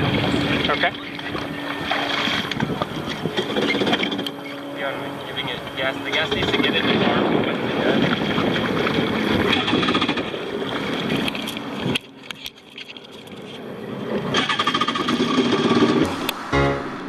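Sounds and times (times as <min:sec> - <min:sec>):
steady rushing noise: 0:00.0 - 0:11.0, 0:13.7 - 0:17.0
jet ski engines idling: 0:00.0 - 0:17.0
music: 0:16.5 - 0:17.0.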